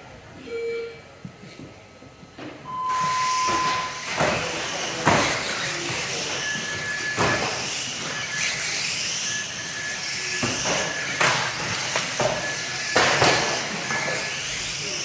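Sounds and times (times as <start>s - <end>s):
toy car motors whining: 2.9s - 15.0s
toy cars knocking into barriers: 10.4s - 14.1s.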